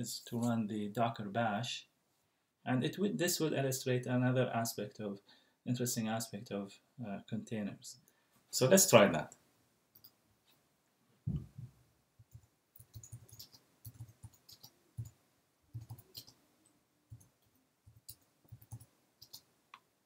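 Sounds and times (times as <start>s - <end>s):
typing on computer keyboard: 12.3s - 16.4s, 17.1s - 19.5s.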